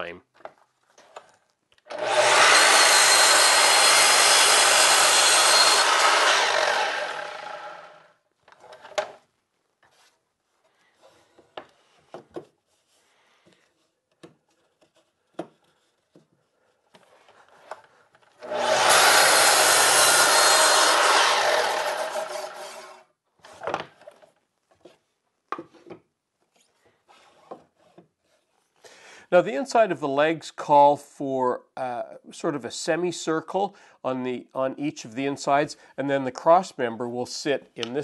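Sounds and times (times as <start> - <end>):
miter saw cutting wood: 1.9 - 8.1, 18.4 - 23.0.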